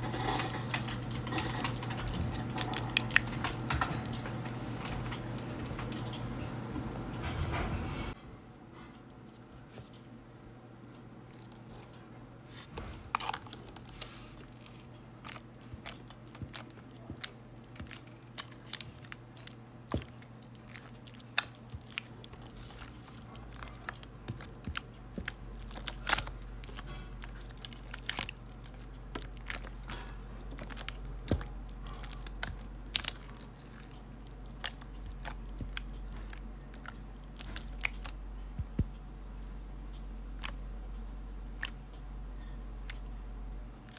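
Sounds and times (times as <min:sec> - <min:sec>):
slime squished by hand: 0:15.2 - 0:38.9.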